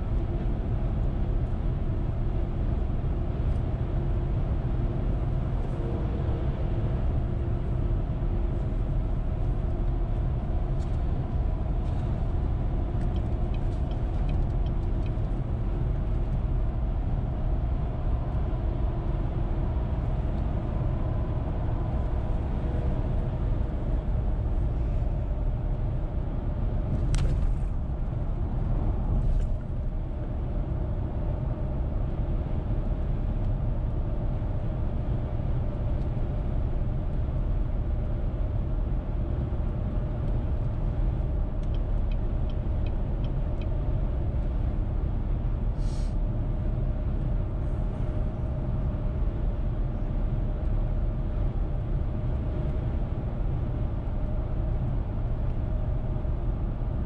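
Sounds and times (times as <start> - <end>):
car tyres and engine rumble: 0.0 - 57.0.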